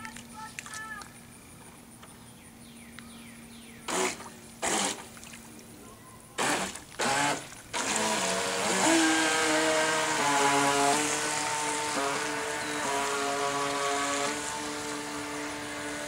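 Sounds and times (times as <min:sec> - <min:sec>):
toy boat motor buzzing: 0:03.8 - 0:05.6, 0:06.2 - 0:16.0.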